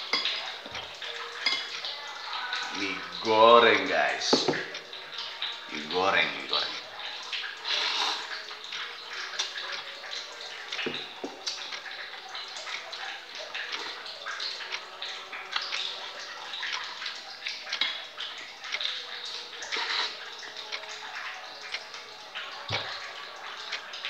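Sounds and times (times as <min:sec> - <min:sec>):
man slurping and chewing noodles: 0:07.6 - 0:08.3, 0:19.7 - 0:20.2.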